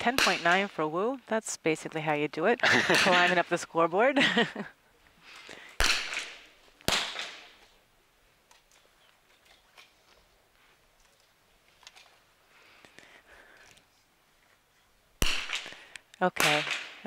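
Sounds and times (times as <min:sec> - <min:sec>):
rifle shots echoing: 0:05.8 - 0:07.6, 0:15.2 - 0:17.0.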